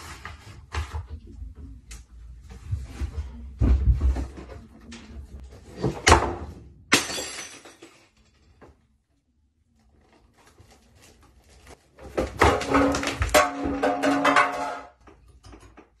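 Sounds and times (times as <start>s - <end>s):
items knocking in a cupboard: 2.7s - 4.7s, 12.0s - 15.0s
container crashing on tiled floor: 5.8s - 8.2s, 12.0s - 15.1s.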